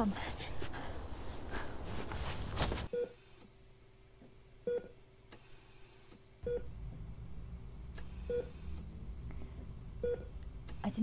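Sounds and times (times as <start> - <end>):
faint steady hum: 0.0 - 11.0
heart monitor beeping: 6.4 - 6.7, 7.9 - 8.8, 10.0 - 11.0.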